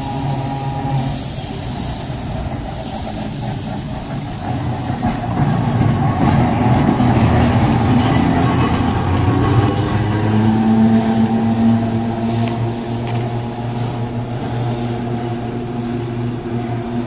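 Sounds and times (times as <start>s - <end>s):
electric tram rolling on rails: 0.0s - 17.0s.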